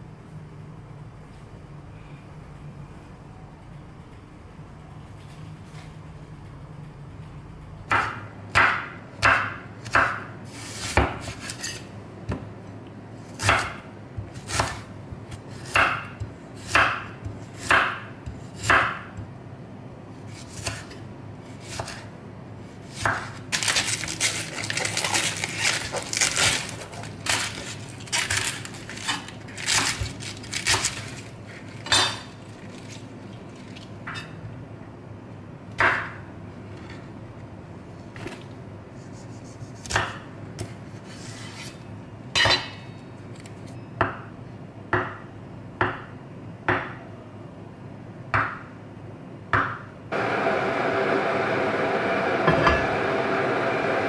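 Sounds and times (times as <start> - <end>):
knife chopping on wooden board: 7.9 - 12.5, 13.4 - 19.3, 21.6 - 22.0, 23.0 - 23.4, 39.8 - 40.7.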